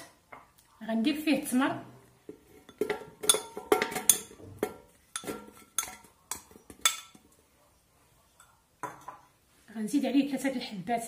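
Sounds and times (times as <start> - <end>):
knife clinking against ceramic bowl: 2.7 - 7.2.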